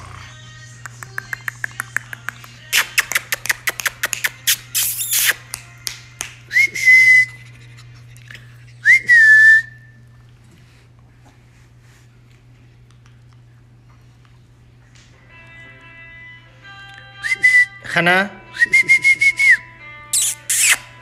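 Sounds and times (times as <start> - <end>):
person making mouth clicks: 0.8 - 5.6, 20.2 - 20.8
person whistling short notes: 3.8 - 5.4, 6.5 - 7.5, 8.8 - 10.0, 17.2 - 17.8, 18.5 - 20.9.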